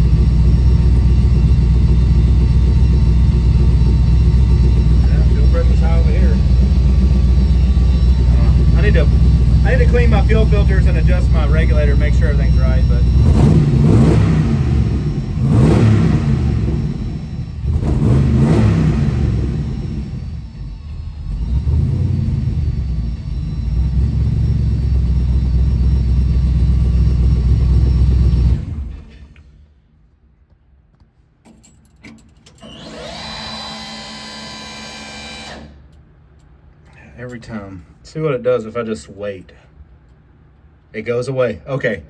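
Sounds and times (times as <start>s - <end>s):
engine revving: 0.0s - 29.1s
small electric motor whining: 32.6s - 35.8s.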